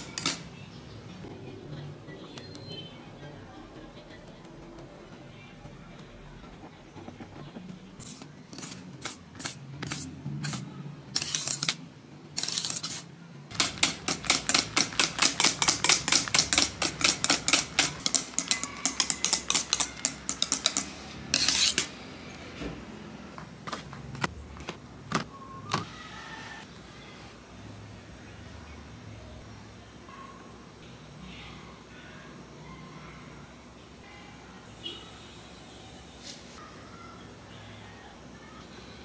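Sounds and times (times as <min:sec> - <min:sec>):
whisk clicking against metal bowl: 0:13.5 - 0:21.9
whisk scraping bowl: 0:13.6 - 0:21.9.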